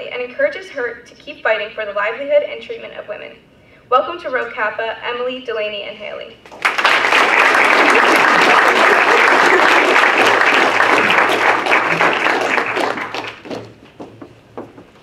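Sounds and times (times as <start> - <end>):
audience applauding: 6.5 - 13.8.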